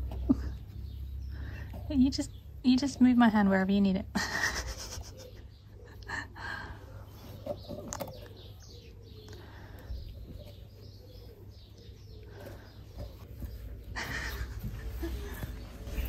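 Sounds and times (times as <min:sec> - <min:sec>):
faint chirping and cooing calls: 0:00.0 - 0:16.0.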